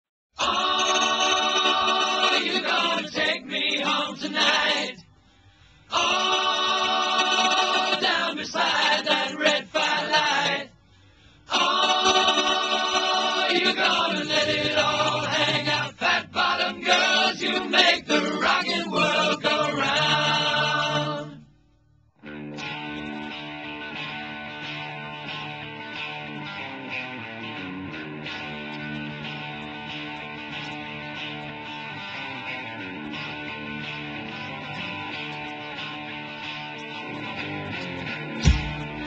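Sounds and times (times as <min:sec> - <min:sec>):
choir singing without instruments: 0:00.4 - 0:05.1, 0:05.8 - 0:10.8, 0:11.4 - 0:21.5.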